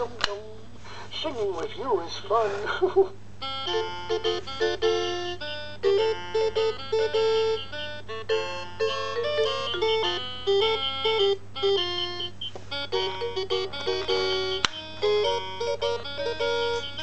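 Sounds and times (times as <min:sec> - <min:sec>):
electronic toy tune: 0:03.4 - 0:17.0.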